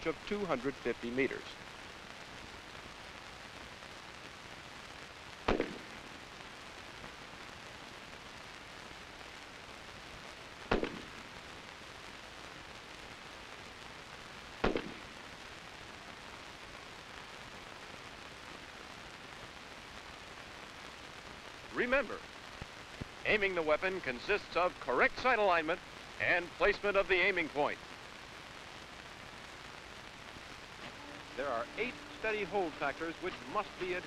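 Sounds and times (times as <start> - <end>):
steady hiss: 0.0 - 34.0
rifle shots: 5.5 - 6.0, 10.7 - 11.2, 14.6 - 15.1.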